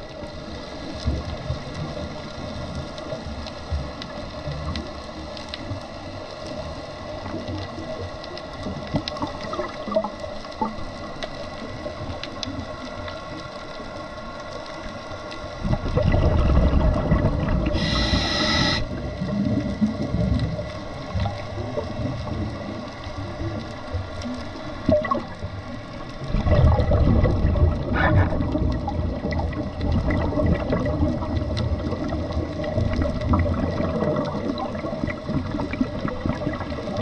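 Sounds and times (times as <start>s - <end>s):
exhaled bubbles rumbling: 0.0s - 37.0s
diver breathing on a regulator: 17.5s - 19.0s
regulator hiss: 17.5s - 19.1s.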